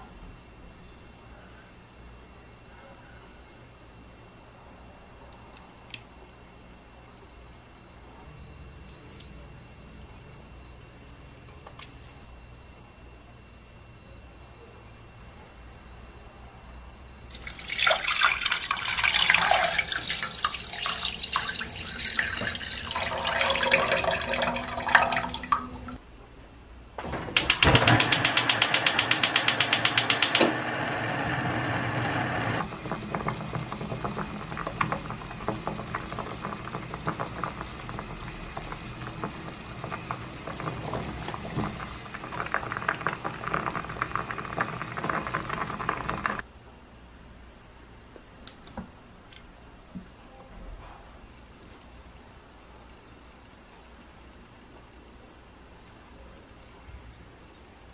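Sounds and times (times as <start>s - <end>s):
water boiling and bubbling: 17.3s - 26.0s, 27.5s - 46.4s
water pouring into saucepan: 17.3s - 26.0s, 31.7s - 46.4s
gas igniter clicking: 27.3s - 33.3s.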